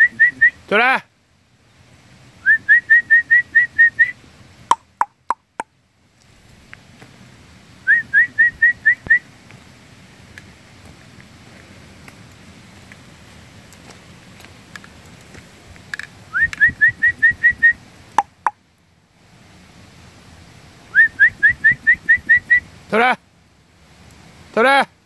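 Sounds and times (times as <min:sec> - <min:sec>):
person whistling for dog: 0:02.4 - 0:04.2, 0:07.9 - 0:09.2, 0:16.3 - 0:17.8, 0:21.0 - 0:22.6.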